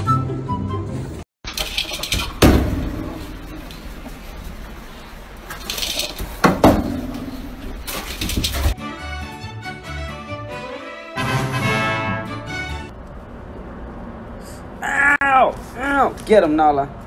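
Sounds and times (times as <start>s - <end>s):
sharp knocks and clatters: 1.5s - 4.2s, 5.5s - 8.8s
rustling handling noise: 1.5s - 8.8s.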